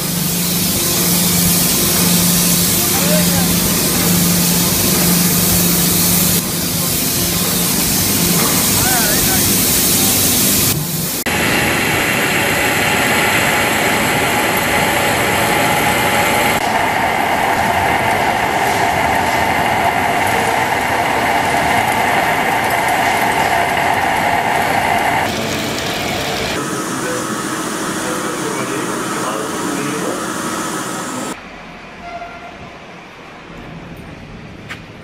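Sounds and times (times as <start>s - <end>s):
steady mid-pitched tone: 0.0s - 12.4s
lathes machining metal: 0.0s - 31.4s.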